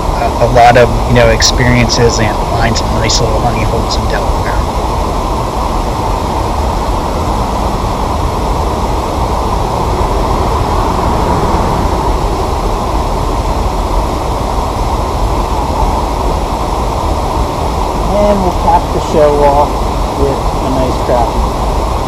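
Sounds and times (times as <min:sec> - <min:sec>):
wind rumbling on microphone: 0:00.0 - 0:22.0.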